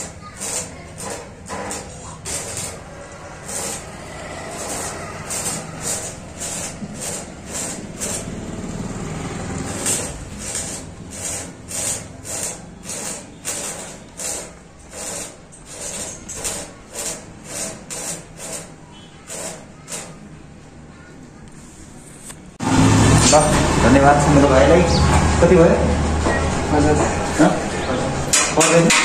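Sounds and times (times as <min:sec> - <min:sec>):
hand tool rasping: 0:00.0 - 0:08.4, 0:09.5 - 0:20.2.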